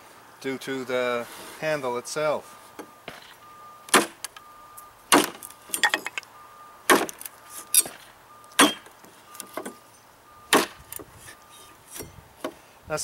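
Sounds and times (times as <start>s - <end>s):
knife chopping wood: 3.9s - 4.2s, 5.1s - 5.4s, 6.9s - 7.2s, 8.6s - 8.8s, 10.5s - 10.8s.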